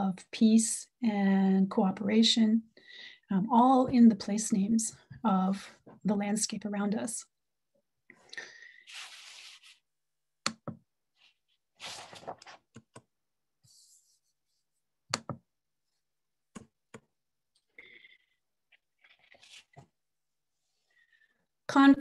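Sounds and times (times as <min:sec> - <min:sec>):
rustling or breath noise: 0:08.2 - 0:09.8.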